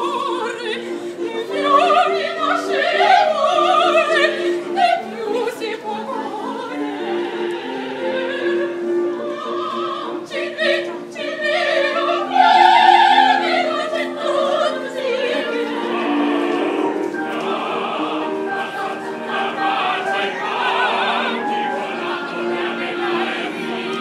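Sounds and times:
opera singers singing with vibrato: 0.0 - 24.0
steady held lower notes: 15.0 - 24.0.

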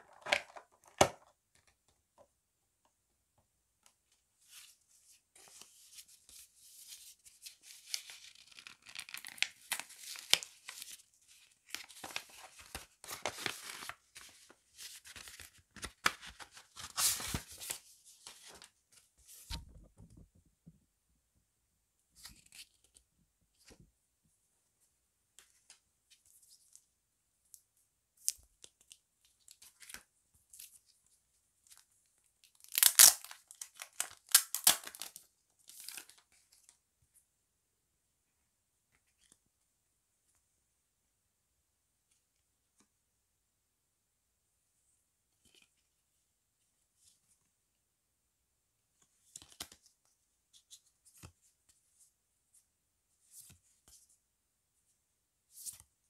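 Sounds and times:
plastic film tearing and crinkling: 32.6 - 35.1.

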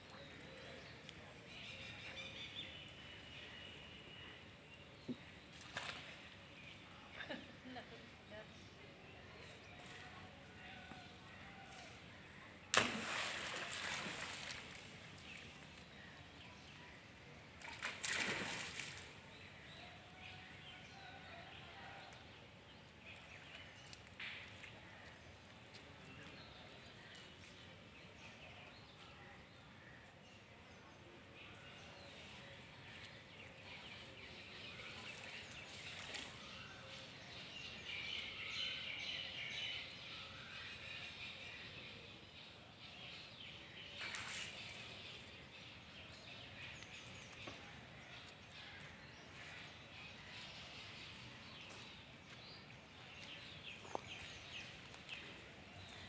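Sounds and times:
birds chirping: 43.5 - 56.0.

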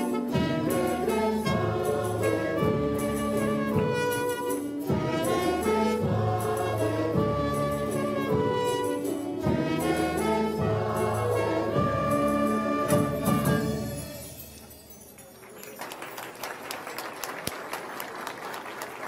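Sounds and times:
small orchestra with violins: 0.0 - 14.4
mixed choir singing: 0.1 - 14.0.

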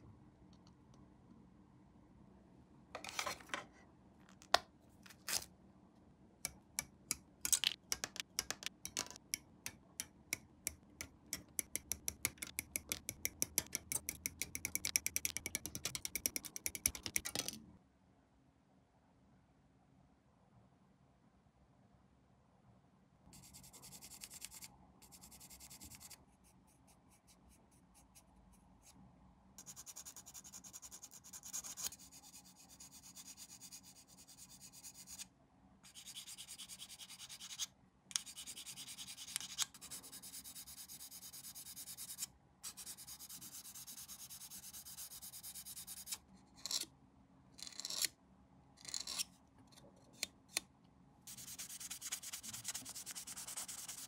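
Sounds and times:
hand sanding plastic: 51.3 - 54.0.

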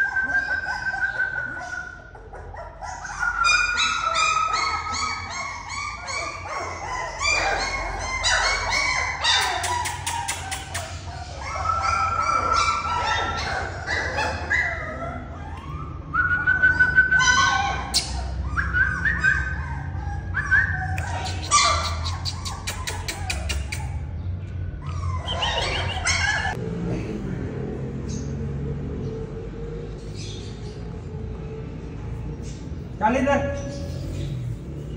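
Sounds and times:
puppies whining: 0.0 - 26.6
puppies yipping: 0.0 - 26.6.

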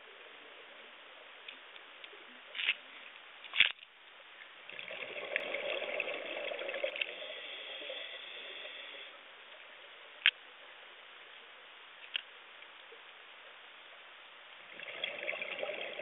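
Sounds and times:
underwater bubbles gurgling: 4.7 - 9.1, 14.7 - 16.0.

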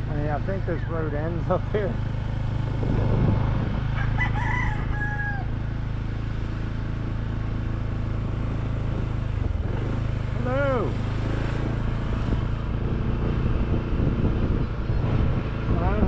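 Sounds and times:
vehicle engine humming: 0.0 - 16.0
rooster crowing: 3.9 - 5.7.

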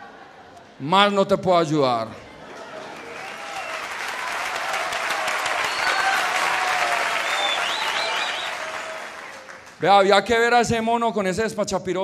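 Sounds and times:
audience applauding: 2.4 - 9.9
wavering whistle: 5.6 - 6.3, 7.0 - 8.7.

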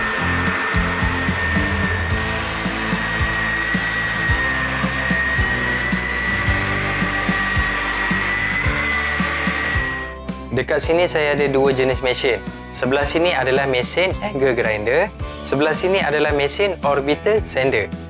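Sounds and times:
sanding pad hissing on wood: 0.0 - 10.2
orbital sander motor whine: 0.0 - 10.4.

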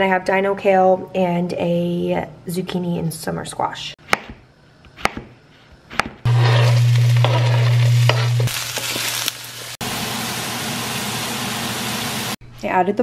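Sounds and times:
knife chopping on cutting board: 4.0 - 4.4, 5.0 - 6.3
wooden spoon stirring: 6.3 - 9.3
vegetables sizzling in a wok: 6.3 - 12.4.

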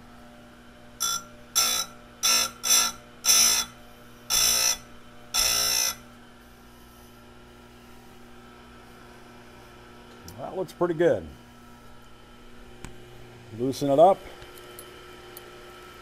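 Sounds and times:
motor humming: 0.9 - 6.5
grinding wheel on saw chain: 1.0 - 6.0.

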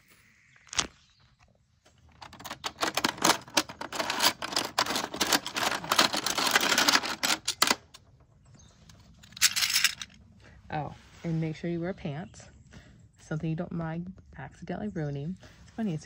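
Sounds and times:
shells clattering in plastic bin: 2.1 - 8.0, 9.2 - 10.2.

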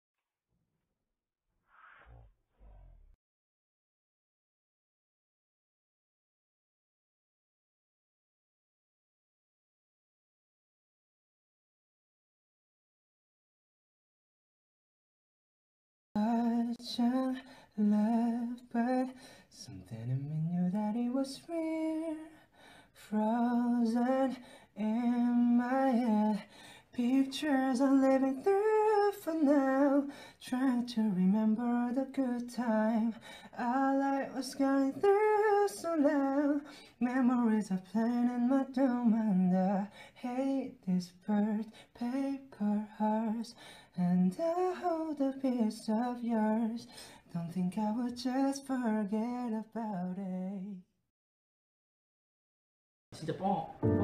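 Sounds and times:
young man singing unaccompanied: 16.2 - 22.4, 23.0 - 50.8.

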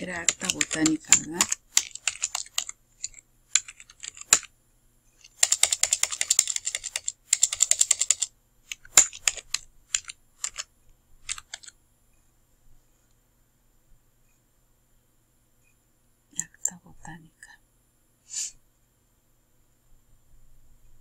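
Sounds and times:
typing on keyboard: 0.0 - 4.5, 5.2 - 11.8.

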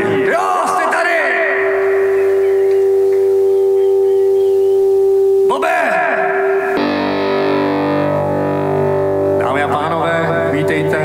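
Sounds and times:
electric guitar ringing chord: 6.4 - 11.0.

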